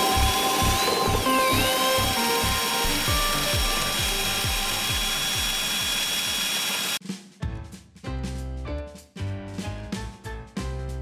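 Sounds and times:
background music: 0.0 - 6.0, 7.0 - 11.0
cordless drill whining: 0.0 - 7.0.

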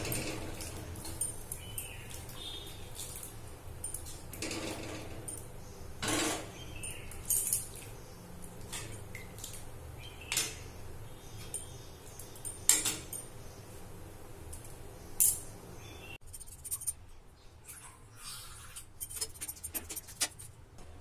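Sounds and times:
ladle clinking and scraping metal pot: 18.8 - 20.5.

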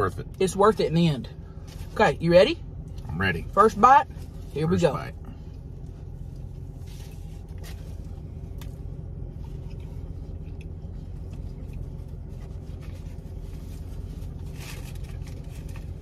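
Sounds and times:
car cabin hum: 0.0 - 16.0.

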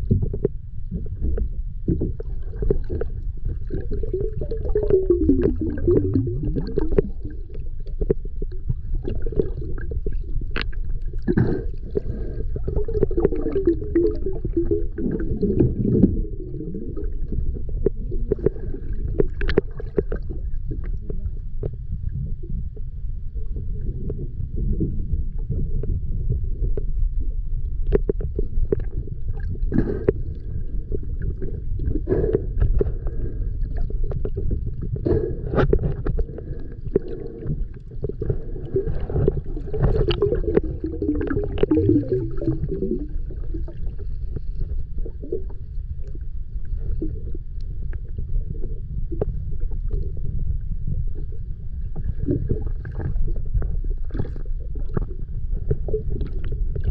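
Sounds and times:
underwater burbling: 0.0 - 56.9
underwater low rumble: 0.0 - 56.9
clicks and crackles: 10.5 - 11.6, 17.7 - 21.8.

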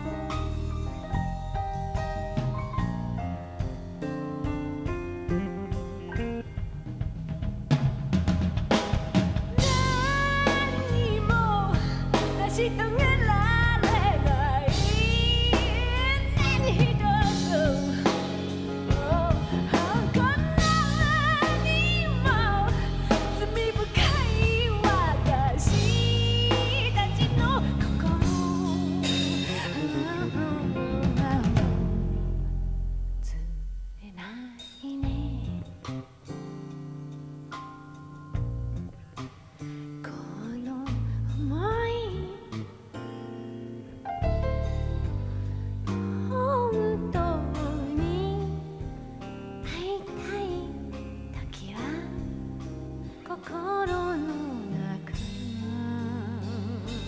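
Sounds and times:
grand piano: 0.0 - 34.1, 35.0 - 57.0
drum kit: 0.0 - 57.0
woman singing a ballad: 9.6 - 32.3, 33.2 - 35.9, 40.0 - 43.2, 45.9 - 57.0.

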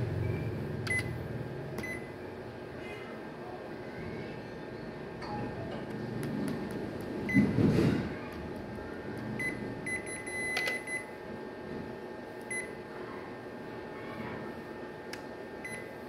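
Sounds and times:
steady machine hum: 0.0 - 16.0
short high key-press beeps: 0.9 - 1.1, 9.4 - 11.1, 12.5 - 12.7.

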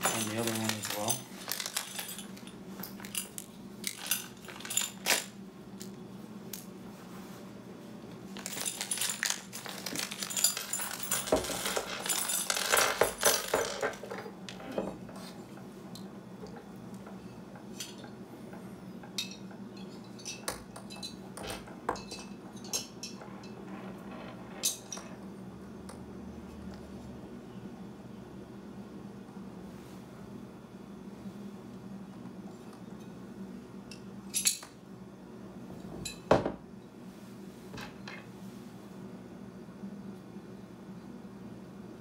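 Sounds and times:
plastic bag rustling: 0.0 - 3.2, 3.9 - 5.3, 8.3 - 14.0
metal hardware clinking: 0.0 - 5.3, 8.4 - 14.8.

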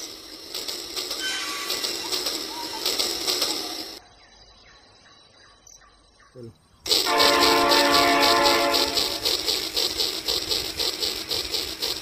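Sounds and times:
toy train clattering on track: 0.0 - 4.0, 6.9 - 12.0
toy train whistle: 1.2 - 2.9, 6.9 - 9.8.

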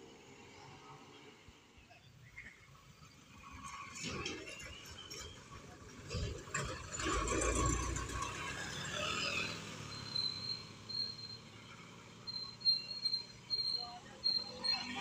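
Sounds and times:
diesel bus rumbling past: 0.0 - 15.0
short high-pitched chirps: 9.9 - 11.5, 12.3 - 15.0.

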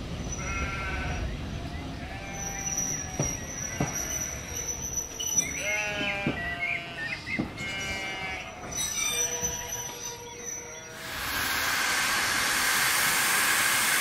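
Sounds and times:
sheep bleating: 5.6 - 8.6.

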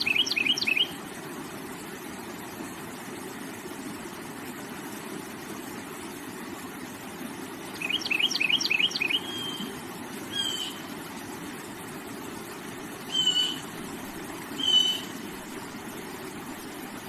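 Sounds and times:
bird chirping and whistling: 0.0 - 0.9, 7.8 - 9.7, 10.3 - 10.8, 13.1 - 13.6, 14.6 - 15.1
water flowing over rocks: 0.0 - 17.0.

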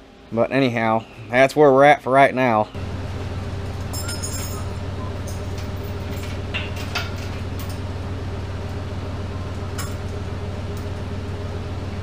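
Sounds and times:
steady low hum: 2.6 - 12.0
light metal clinks and taps: 3.9 - 7.8.

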